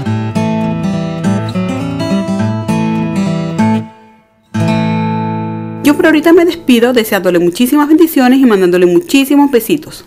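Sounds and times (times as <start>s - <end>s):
strummed acoustic guitar chords: 0.0s - 5.8s.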